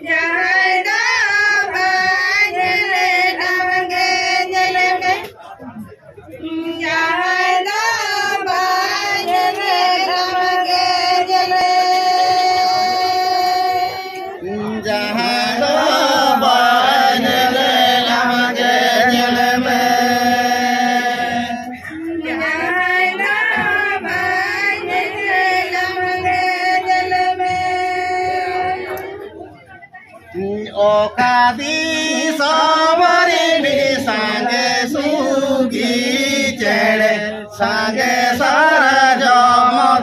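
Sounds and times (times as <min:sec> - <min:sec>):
group chanting in unison: 0:13.8 - 0:27.3, 0:30.4 - 0:40.0.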